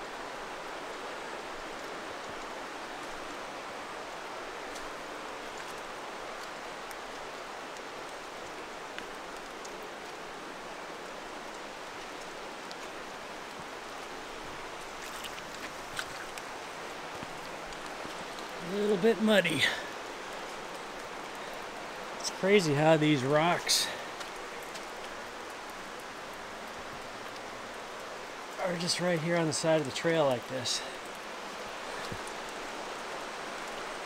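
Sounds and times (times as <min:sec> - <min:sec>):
water rushing: 0:00.0 - 0:34.0
footsteps on muddy path: 0:04.4 - 0:10.3, 0:11.5 - 0:25.5, 0:30.4 - 0:34.0.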